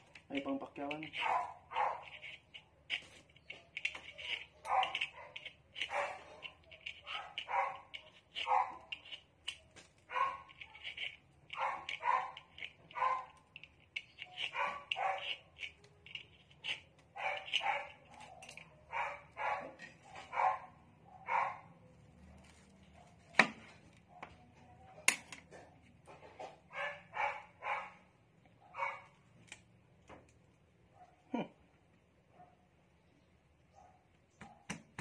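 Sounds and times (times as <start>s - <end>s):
dog barking: 1.1s - 2.2s, 4.3s - 9.2s, 10.1s - 13.4s, 14.3s - 15.4s, 17.2s - 23.4s, 26.7s - 29.2s, 31.0s - 31.3s, 32.3s - 32.7s, 33.7s - 34.7s.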